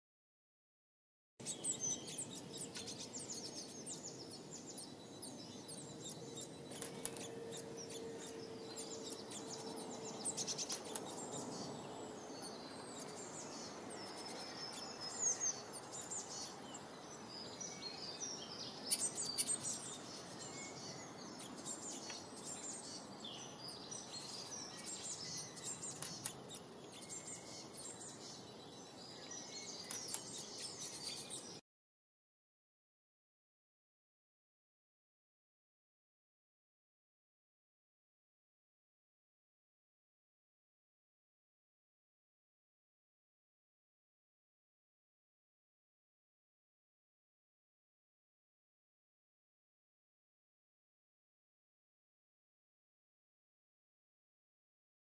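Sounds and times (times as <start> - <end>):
small birds chirping: 1.4 - 31.6.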